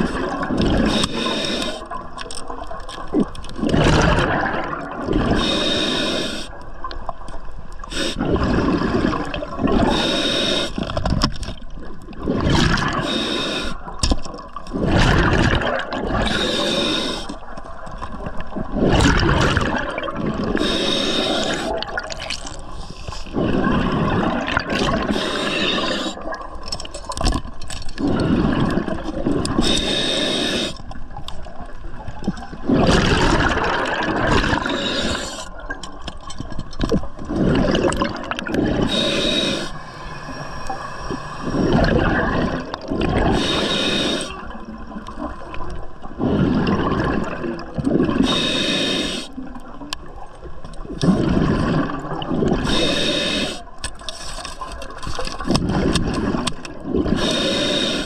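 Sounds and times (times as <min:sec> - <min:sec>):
diver breathing through regulator: 0:00.0 - 0:02.0, 0:05.2 - 0:06.6, 0:07.9 - 0:08.6, 0:09.8 - 0:11.0, 0:12.5 - 0:14.0, 0:14.8 - 0:17.5, 0:20.4 - 0:21.8, 0:22.7 - 0:26.2, 0:28.0 - 0:30.9, 0:32.7 - 0:35.6, 0:37.3 - 0:42.4, 0:43.1 - 0:44.5, 0:48.1 - 0:49.4, 0:52.5 - 0:54.8, 0:55.6 - 0:58.0
bubbles gurgling and hissing: 0:00.0 - 0:58.0.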